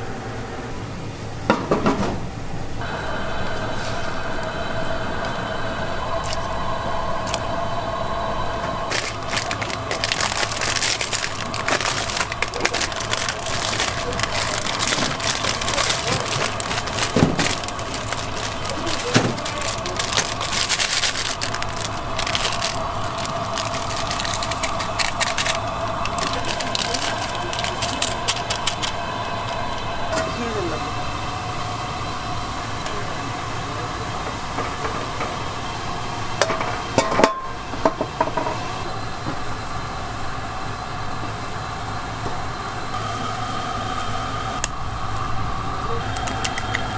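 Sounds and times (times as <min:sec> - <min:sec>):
kitchen hum: 0:00.0 - 0:46.9
plastic packets crinkling: 0:08.8 - 0:29.6, 0:46.1 - 0:46.8.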